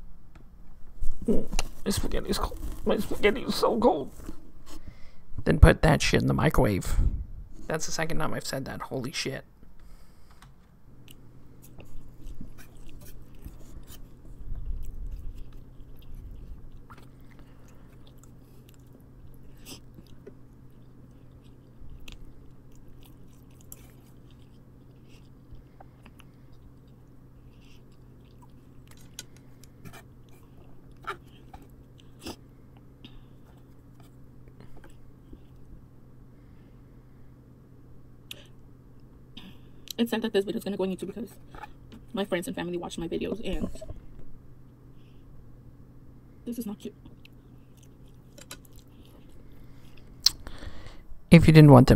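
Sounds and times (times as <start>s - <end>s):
steady low hum: 0.0s - 51.9s
person chewing: 11.0s - 35.8s, 47.0s - 50.8s
mouth clicks: 50.2s - 50.5s.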